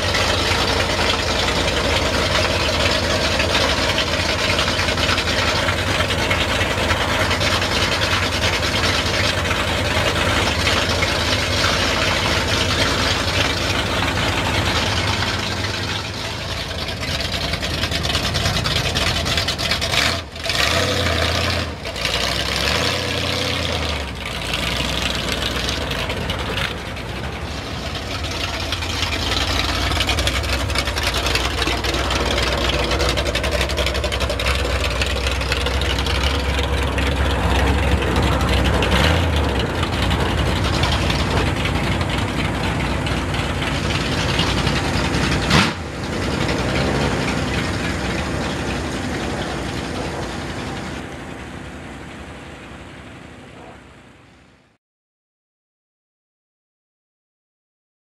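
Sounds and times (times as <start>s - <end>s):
truck engine rumbling: 0.0s - 54.8s
sharp crack: 43.7s - 47.6s.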